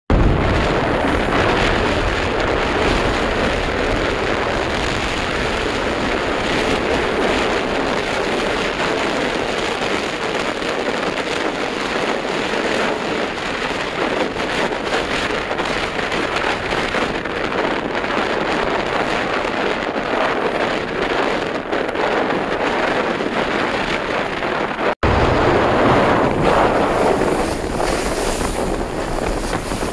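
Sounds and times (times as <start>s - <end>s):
rush of wind: 0.1s - 29.9s
wind buffeting microphone: 0.1s - 29.9s
water splashing past hull: 21.6s - 29.9s.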